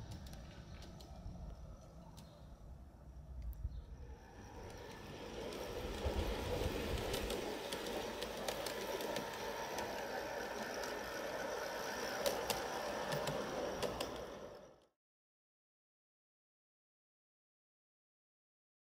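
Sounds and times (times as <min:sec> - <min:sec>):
wheels clicking over rail joints: 0:00.0 - 0:14.9
model train running on track: 0:00.0 - 0:15.0.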